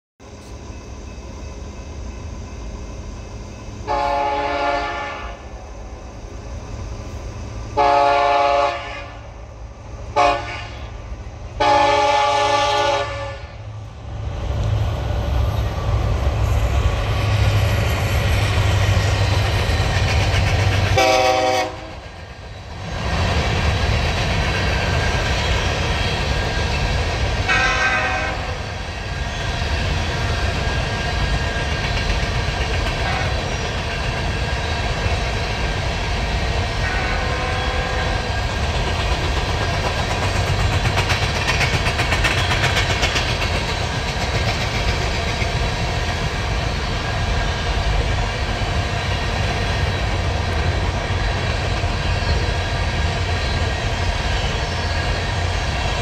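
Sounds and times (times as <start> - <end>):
train cars rolling rumble: 0.2 - 56.0
locomotive horn blasts: 3.8 - 5.4, 7.8 - 9.2, 10.2 - 11.0, 11.6 - 13.6, 21.0 - 22.0, 27.5 - 28.6, 33.0 - 33.4, 36.8 - 38.2
locomotives passing rumble: 9.0 - 56.0.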